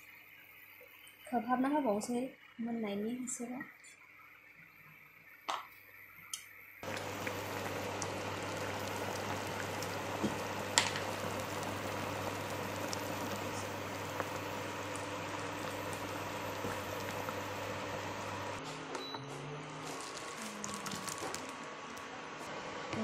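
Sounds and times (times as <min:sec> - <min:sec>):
curry bubbling in a pan: 0:06.8 - 0:18.6
low hum: 0:06.8 - 0:18.6.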